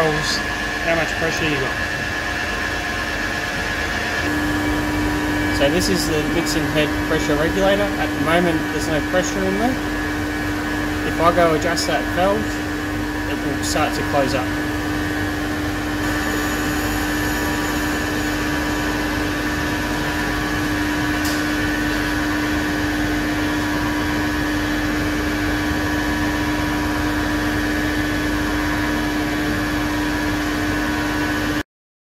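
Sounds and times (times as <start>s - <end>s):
faint high motor whine: 0.0s - 31.2s
mixer machine hum: 0.0s - 31.6s.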